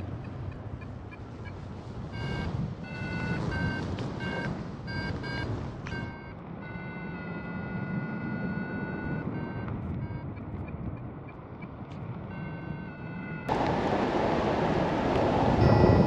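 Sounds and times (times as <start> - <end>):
wind on microphone: 0.0 - 6.2, 13.5 - 16.0
variometer beeping: 0.0 - 13.5, 15.6 - 16.0.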